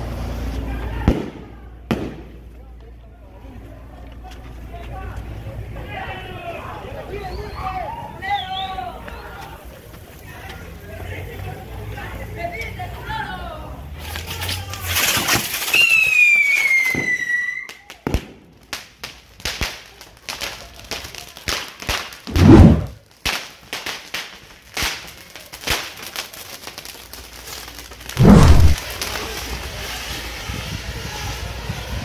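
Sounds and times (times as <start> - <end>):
firecracker pops and crackles: 0.4 - 3.0, 14.0 - 32.0
deep firework blasts: 1.0 - 2.5, 22.3 - 23.0, 28.2 - 29.1
firework whistle: 15.6 - 17.8.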